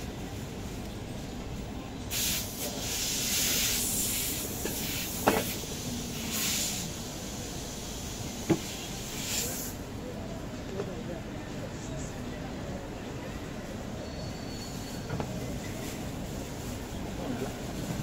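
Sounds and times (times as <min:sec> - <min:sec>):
steam hissing in bursts: 0:02.1 - 0:09.8.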